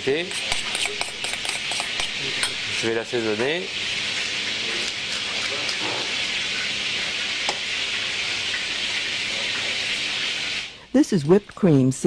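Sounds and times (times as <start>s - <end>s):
food sizzling in a pan: 0.0s - 11.6s.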